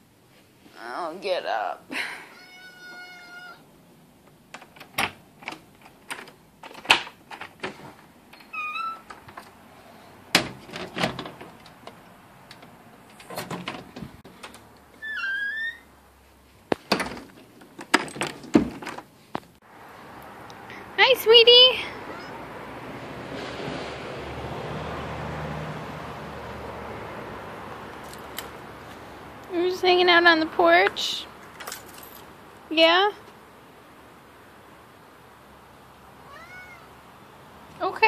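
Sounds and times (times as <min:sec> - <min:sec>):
cat meowing: 0:02.3 - 0:03.7, 0:21.8 - 0:22.4, 0:36.2 - 0:37.0
knocks thumps and rustling: 0:10.3 - 0:12.0, 0:13.1 - 0:14.6, 0:16.7 - 0:19.6.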